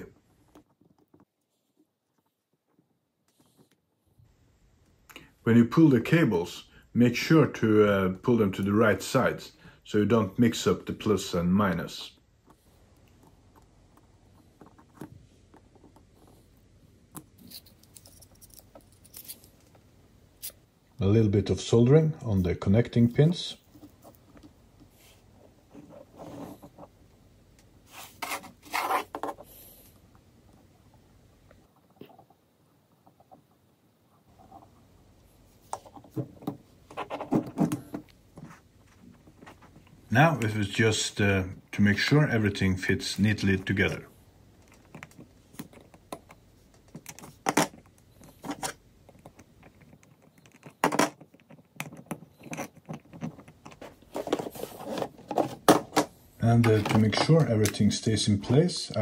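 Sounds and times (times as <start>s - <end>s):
hands rubbing metal clips and plastic: 12.3s - 20.6s, 44.6s - 57.9s
clicks and taps of wires and pins: 44.6s - 54.5s.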